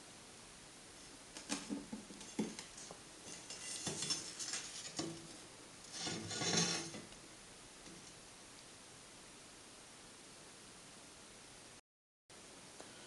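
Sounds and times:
metal scraping rattle: 2.2s - 7.1s.

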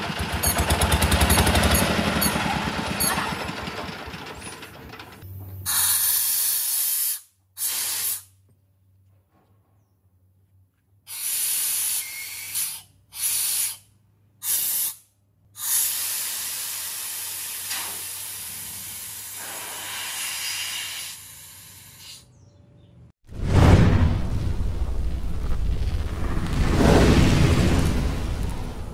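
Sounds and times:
compressed air hissing: 5.7s - 8.4s, 11.1s - 22.2s.

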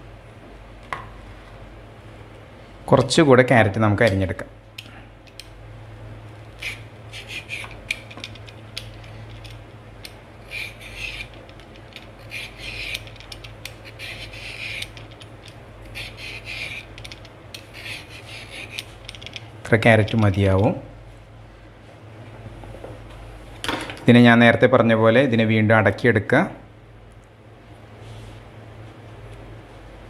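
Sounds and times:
peeler scraping carrot: 6.6s - 9.6s, 10.4s - 19.3s.

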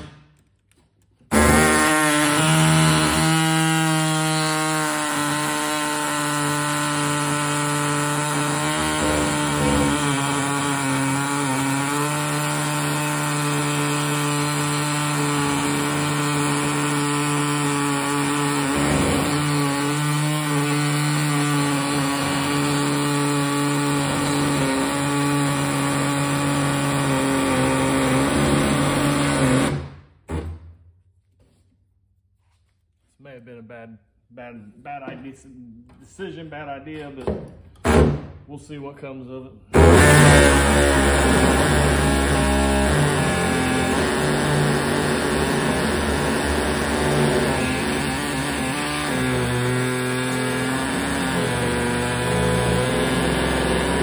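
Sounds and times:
electric power tool cutting metal: 1.3s - 29.8s, 39.8s - 54.0s.

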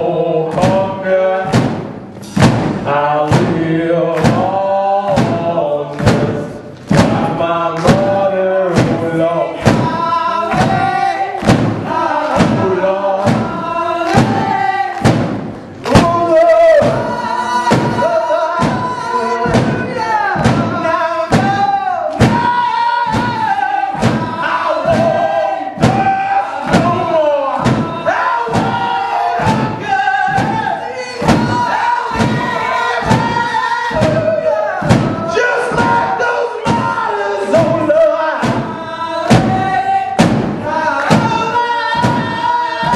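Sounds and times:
man singing: 0.0s - 1.8s, 2.8s - 42.9s
drum kit beat: 0.0s - 42.9s.

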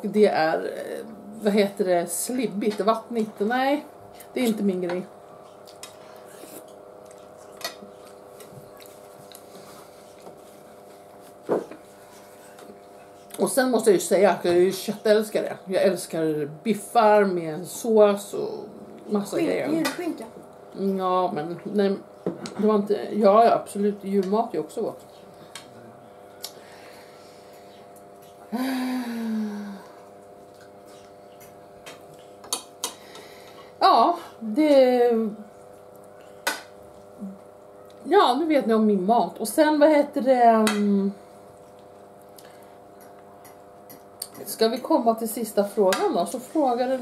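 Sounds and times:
steady low hum: 0.0s - 47.0s
person humming mmm: 28.5s - 30.1s.

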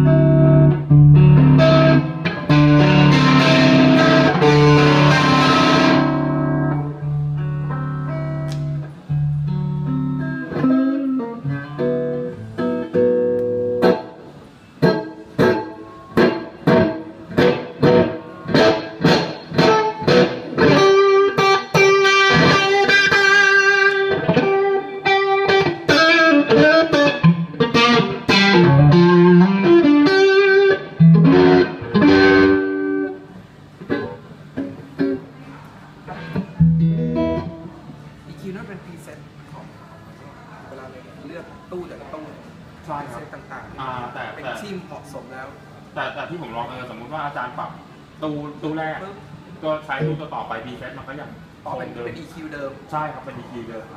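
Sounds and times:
overdriven electric guitar: 0.0s - 38.0s.

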